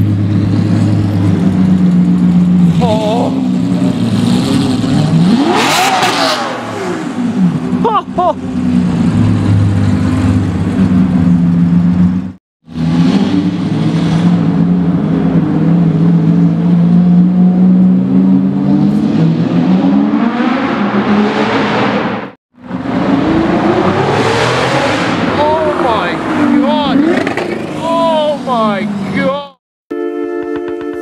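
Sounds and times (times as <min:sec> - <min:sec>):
car engine revving loudly: 0:03.8 - 0:07.7, 0:12.7 - 0:28.1.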